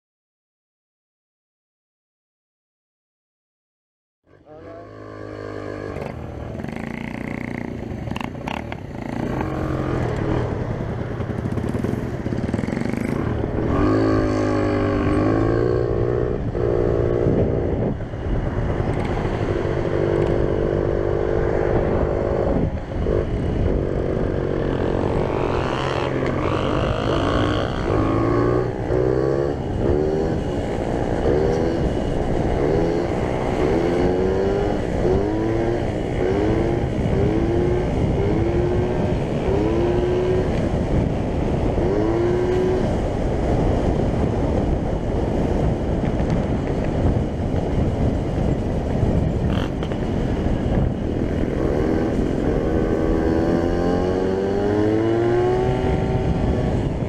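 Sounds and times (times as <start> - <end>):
scooter engine accelerating: 4.4 - 44.5.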